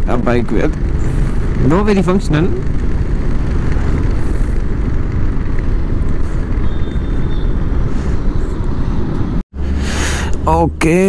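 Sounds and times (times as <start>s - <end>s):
motorcycle engine: 0.0s - 7.9s
wind rumbling on microphone: 0.0s - 10.3s.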